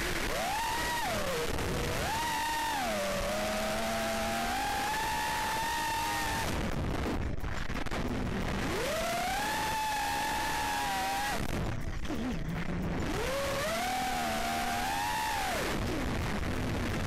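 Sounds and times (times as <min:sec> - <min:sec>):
quadcopter motors whining: 0:00.0 - 0:06.7, 0:08.6 - 0:11.5, 0:13.0 - 0:16.1.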